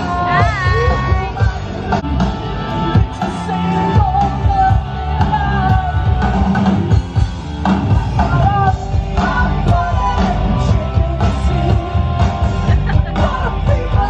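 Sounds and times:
drum beat: 0.0s - 1.9s
person singing: 0.0s - 2.0s, 8.2s - 14.0s
rock music: 0.0s - 14.0s.

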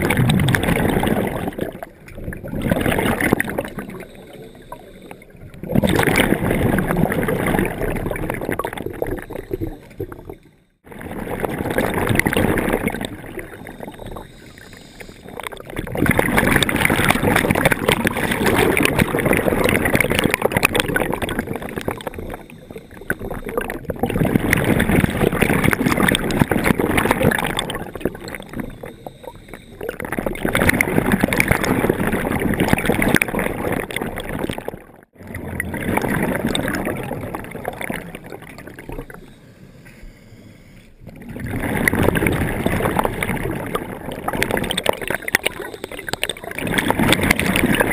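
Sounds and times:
diver exhaling bubbles underwater: 0.0s - 47.9s.

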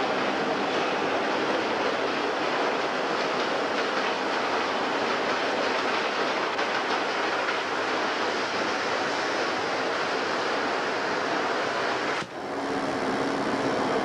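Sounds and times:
diesel train passing: 0.0s - 14.0s.

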